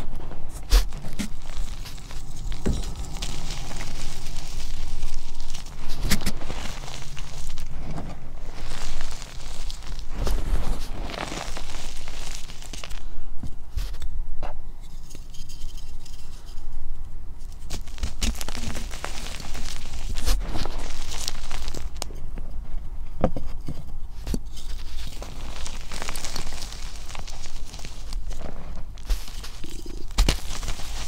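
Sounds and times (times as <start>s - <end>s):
chalk crunching by hand: 0.0s - 13.1s, 17.5s - 22.1s, 24.3s - 31.0s
powder sifting through fingers: 0.0s - 13.1s, 17.5s - 22.1s, 24.3s - 31.0s.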